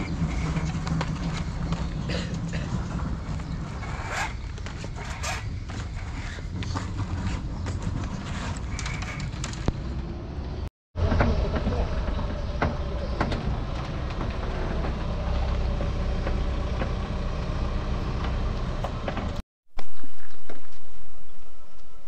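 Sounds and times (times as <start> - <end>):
knocks and rattles: 0.0 - 10.1, 11.0 - 17.1
vehicle engine and road rumble: 0.0 - 20.6.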